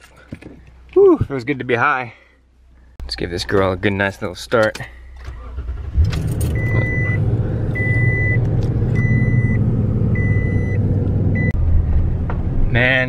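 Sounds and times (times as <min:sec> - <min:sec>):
dashboard warning chime beeping: 0:06.5 - 0:07.2, 0:07.8 - 0:10.8.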